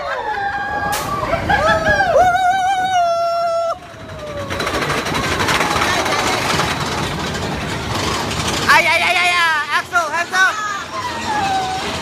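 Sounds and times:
roller coaster running on track: 0.0 - 12.0
rider screaming: 10.4 - 12.0.

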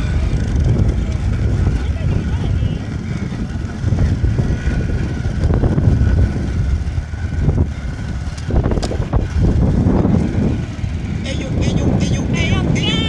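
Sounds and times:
wind buffeting microphone: 0.0 - 13.0.

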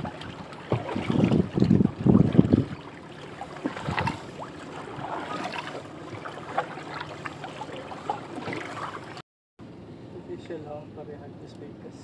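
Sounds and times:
paddle stroke splashes: 0.0 - 9.2
water lapping around boat: 0.0 - 9.2.

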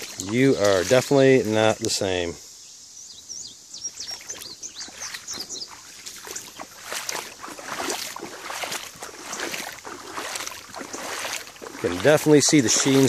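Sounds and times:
splashing in shallow water and mud: 0.0 - 2.3, 3.8 - 13.0
high bird chirps: 2.6 - 6.9.

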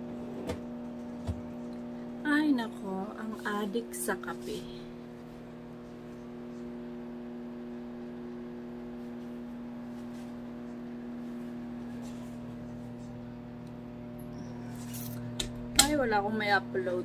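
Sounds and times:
deeper hum: 0.0 - 17.0
electrical appliance mains hum: 0.0 - 17.0.

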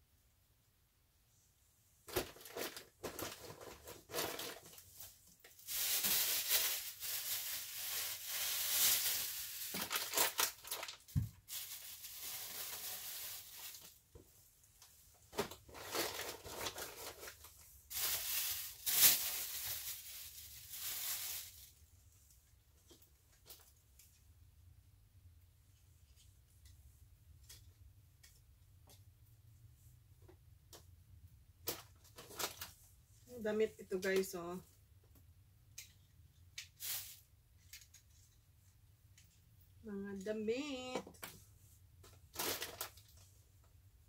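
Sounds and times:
plastic bags crinkling and rustling: 2.0 - 21.9, 22.8 - 24.1, 31.6 - 34.5, 36.6 - 38.4, 40.5 - 43.4.

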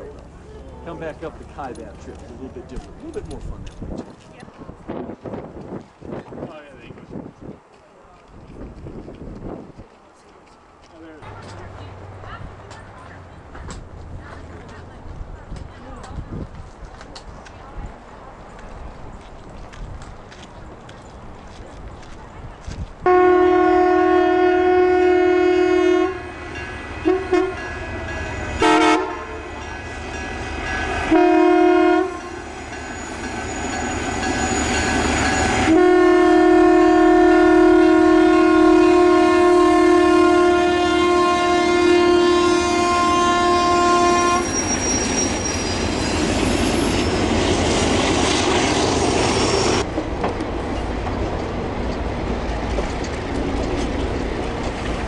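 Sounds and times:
train wheels rushing on rails: 0.0 - 23.1, 26.0 - 40.6, 41.2 - 55.0
locomotive air horn blasts: 23.0 - 29.6, 30.9 - 32.6, 35.4 - 45.7.

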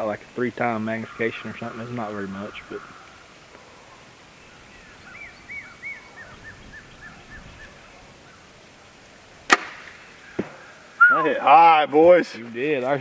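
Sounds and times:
bird chirping: 0.6 - 9.0
bow string snap: 9.5 - 10.5.

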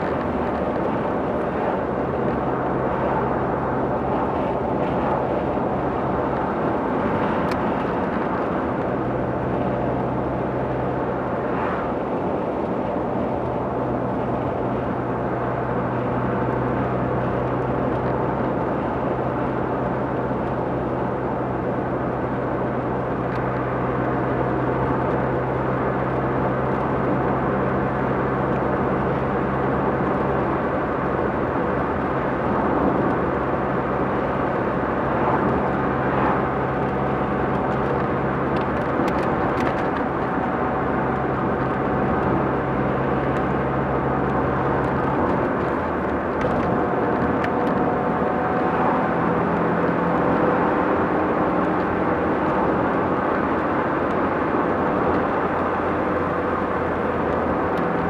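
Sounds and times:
road and tyre noise: 0.0 - 58.0
low engine note: 28.8 - 58.0.

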